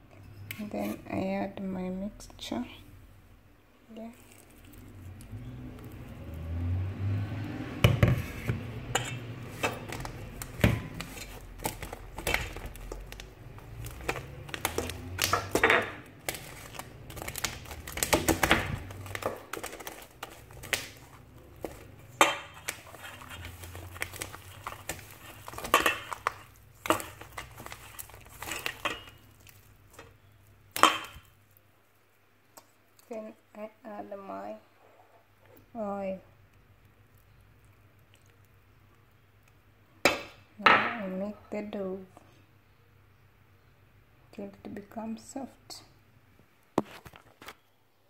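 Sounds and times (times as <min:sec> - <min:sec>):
metal spoon scraping bowl: 0:08.1 - 0:11.5, 0:21.0 - 0:29.3.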